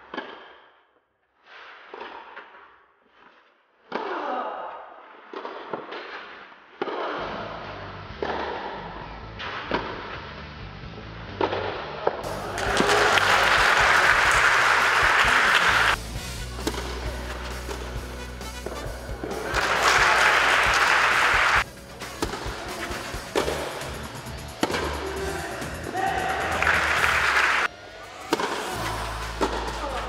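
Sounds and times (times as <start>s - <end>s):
crowd applauding: 12.2s - 16.0s, 19.1s - 21.7s, 25.0s - 27.7s
racket striking tennis ball: 16.5s - 18.0s, 21.8s - 27.3s, 28.3s - 30.0s.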